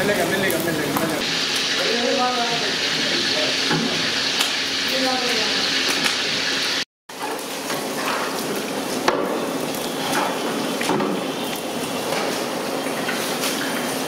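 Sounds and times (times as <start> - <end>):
hot oil sizzling in a pan: 0.0 - 14.0.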